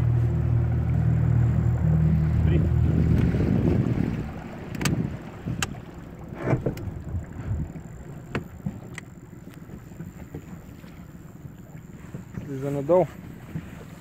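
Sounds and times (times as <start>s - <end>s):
water around a boat: 0.0s - 14.0s
sharp clicks and knocks: 4.7s - 5.0s.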